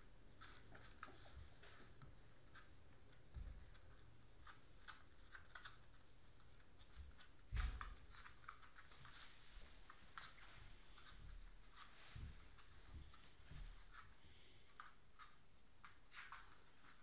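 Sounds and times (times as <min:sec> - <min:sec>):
puppy paws clicking and scuffing: 0:00.0 - 0:17.0.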